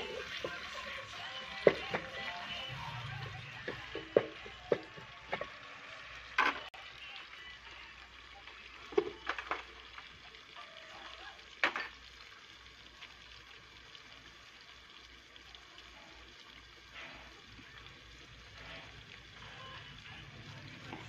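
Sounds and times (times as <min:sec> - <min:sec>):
pot frying hiss: 0:00.0 - 0:21.0.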